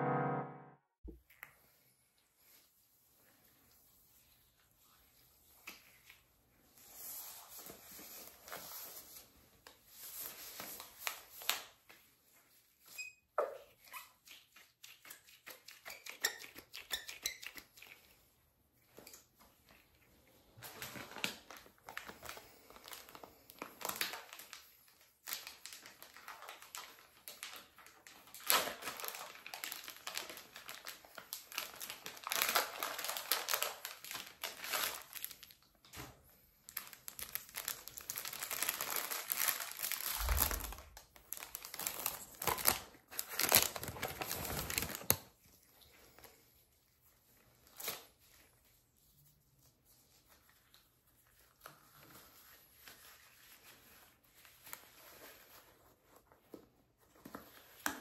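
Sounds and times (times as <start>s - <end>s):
glove wrapper crinkling: 20.6s - 45.5s.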